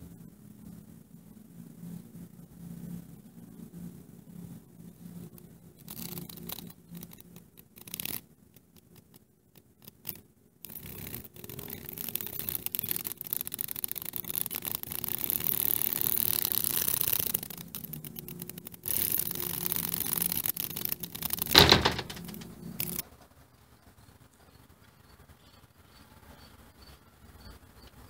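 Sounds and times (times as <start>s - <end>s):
cicada buzzing: 9.9s - 23.0s.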